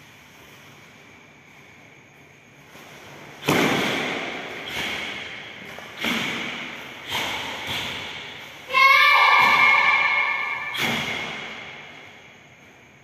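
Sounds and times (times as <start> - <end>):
karate strikes snapping: 3.4 - 8.3, 9.4 - 11.6
loud held shout: 8.7 - 10.7.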